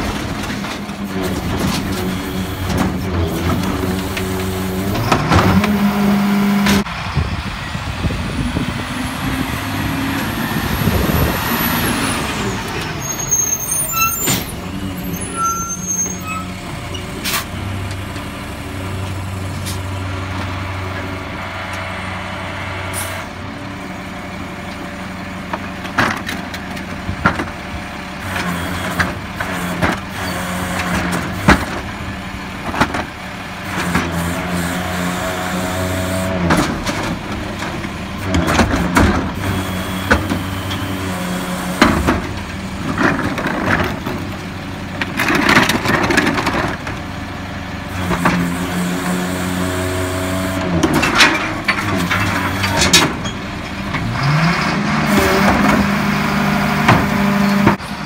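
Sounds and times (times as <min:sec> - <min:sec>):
carts clanking and knocking: 0:00.0 - 0:05.8, 0:41.7 - 0:47.1, 0:50.8 - 0:54.3
garbage truck diesel engine revving: 0:00.0 - 0:58.0.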